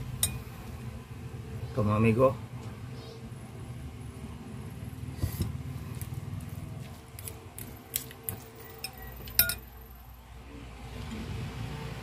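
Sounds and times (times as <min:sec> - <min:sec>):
metal spoon clinking on ceramic bowl: 0:08.8 - 0:09.7.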